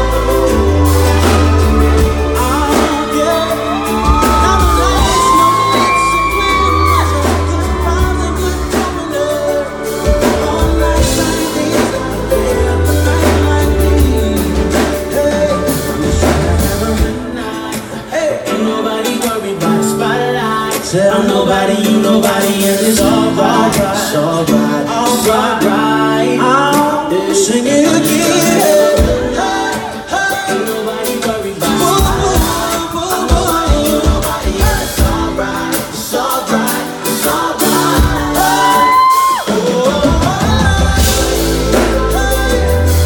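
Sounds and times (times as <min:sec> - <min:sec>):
heavy bass: 0:00.0 - 0:17.3, 0:37.6 - 0:43.0
live pop band playing: 0:00.0 - 0:43.0
man singing: 0:00.0 - 0:43.0.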